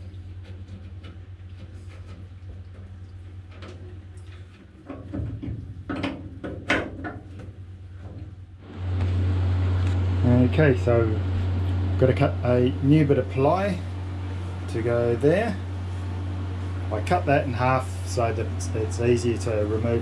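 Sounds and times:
hum and hiss: 7.0s - 20.0s
low hum: 7.4s - 20.0s.

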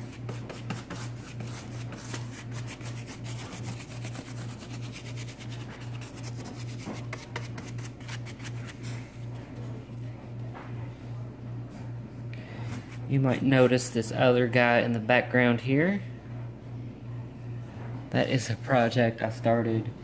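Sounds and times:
bristle brush scratching: 0.0s - 8.8s.

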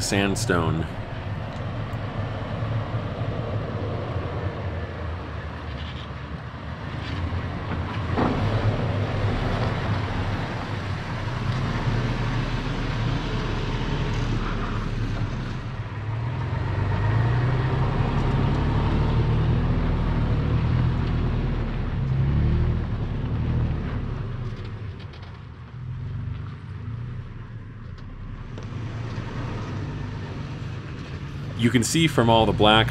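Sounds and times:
truck engine revving: 8.0s - 24.7s.

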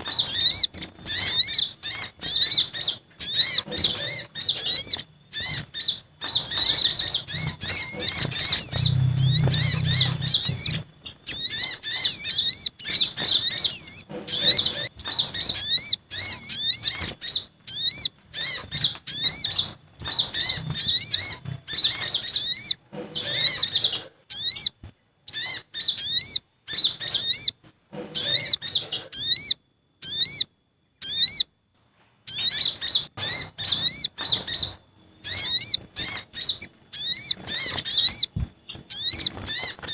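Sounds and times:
sunbird high thin chirps: 0.0s - 24.7s.

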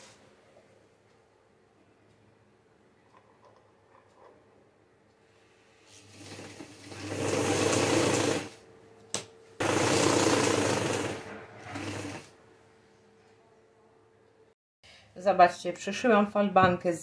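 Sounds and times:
sewing machine stitching: 5.9s - 8.6s, 9.6s - 12.3s.

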